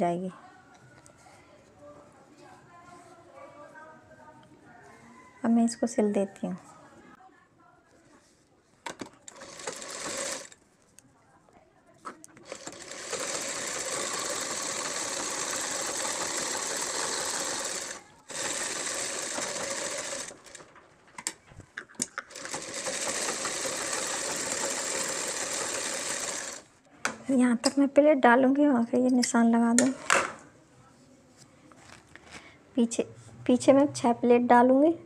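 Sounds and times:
sewing machine stitching: 8.9s - 10.6s, 12.4s - 20.8s, 22.3s - 26.7s
sewing machine clicks: 12.4s - 21.4s, 22.0s - 26.6s.

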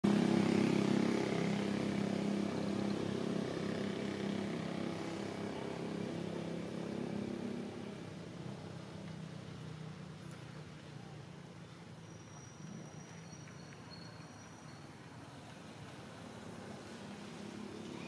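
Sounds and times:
engine low drone: 0.0s - 11.8s.

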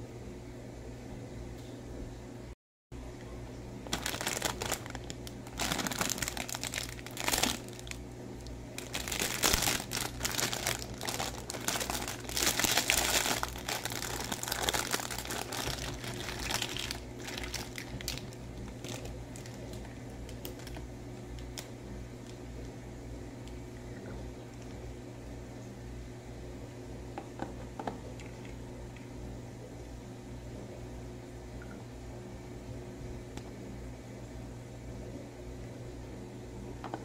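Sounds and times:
plastic bag crinkling: 3.8s - 22.4s.

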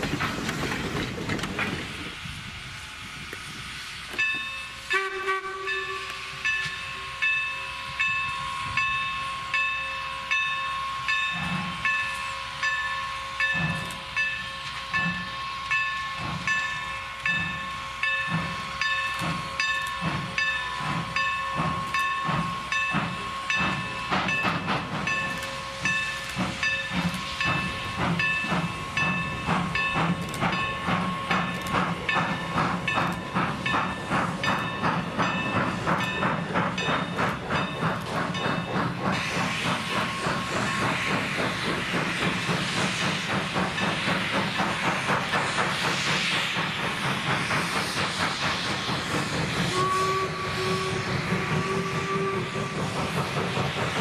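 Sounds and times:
steam locomotive exhaust chuffing: 0.0s - 54.0s.

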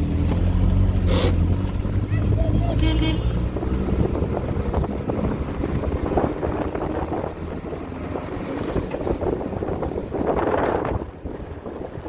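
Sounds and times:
car engine: 0.0s - 12.0s
road noise: 0.0s - 12.0s
wind buffeting microphone: 3.3s - 12.0s.

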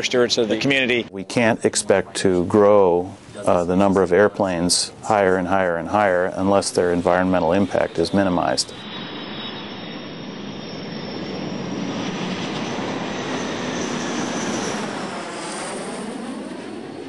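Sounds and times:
jet engines rushing and whining: 6.0s - 17.0s.

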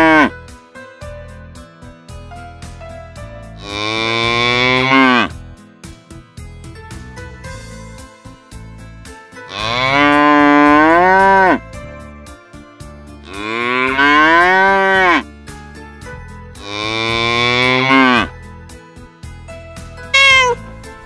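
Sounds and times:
cows mooing: 0.0s - 0.3s, 3.6s - 5.4s, 9.5s - 11.6s, 13.3s - 15.2s, 16.6s - 18.3s, 20.2s - 20.6s
background music with steady beat: 0.0s - 21.0s.

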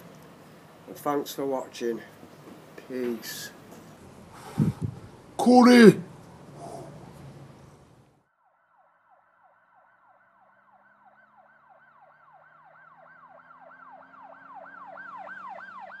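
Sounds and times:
electronic siren sweeps: 8.4s - 16.0s.

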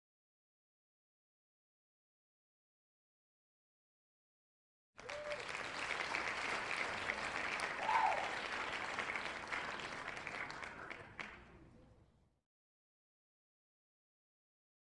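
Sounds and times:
applause: 5.0s - 11.7s.

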